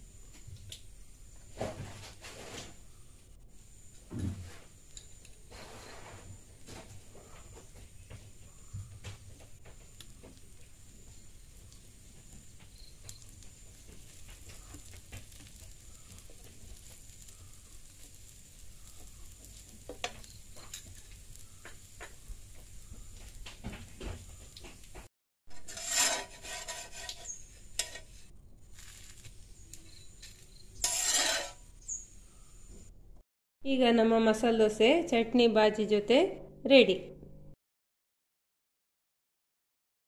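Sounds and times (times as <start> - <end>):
dosa sizzling on a pan: 0.0 - 32.7
spatula scraping a pan: 4.5 - 7.6, 19.2 - 22.0, 25.5 - 29.3, 29.9 - 32.0.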